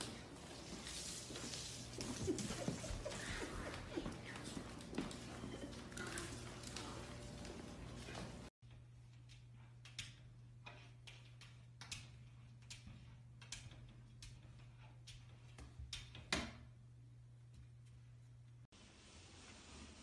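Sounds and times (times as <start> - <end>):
puppy paws tapping: 0.0 - 8.5.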